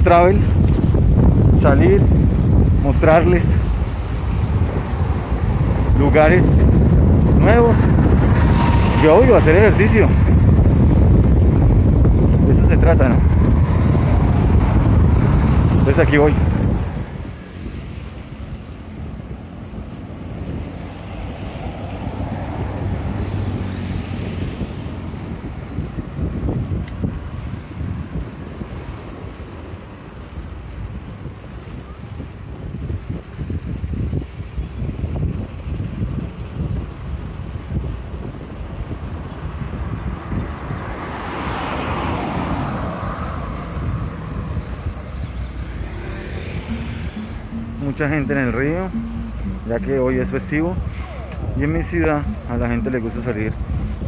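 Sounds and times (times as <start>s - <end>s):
wind on microphone: 0.0s - 54.0s
car passing close by: 4.4s - 17.3s, 19.8s - 25.4s, 40.2s - 48.2s.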